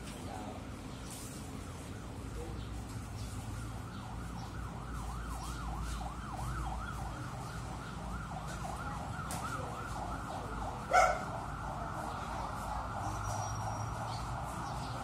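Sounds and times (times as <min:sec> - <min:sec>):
siren sweeping up and down: 0:03.4 - 0:15.0.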